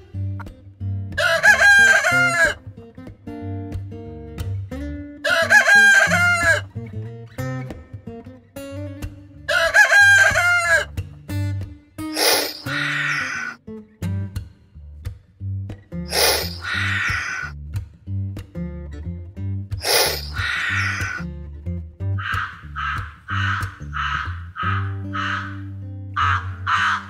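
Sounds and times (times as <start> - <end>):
plucked guitar music: 0.0 - 27.0
rooster crowing: 1.2 - 2.6, 5.2 - 6.6, 9.5 - 10.9, 20.1 - 21.2, 22.2 - 25.6, 26.2 - 27.0.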